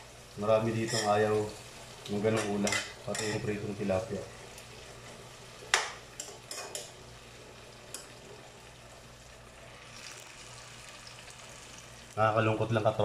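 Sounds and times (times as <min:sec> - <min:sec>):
stir-fry sizzling in a pan: 0:00.0 - 0:13.0
metal spoon clicking on pan: 0:05.7 - 0:06.9.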